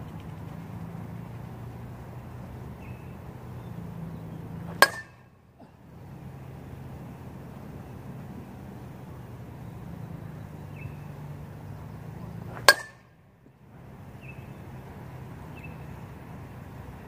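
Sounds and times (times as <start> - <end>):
metal bat hitting ball: 4.7 - 5.2, 12.5 - 13.1.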